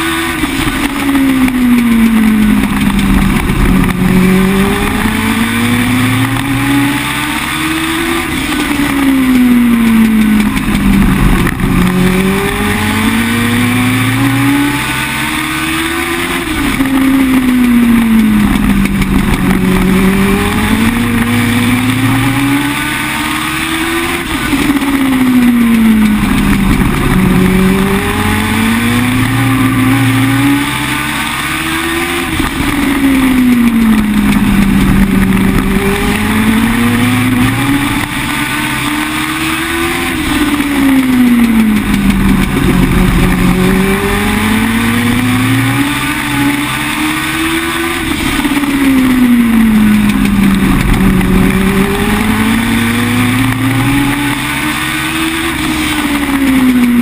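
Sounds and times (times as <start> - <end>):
racing car engine revving: 0.0 - 57.0.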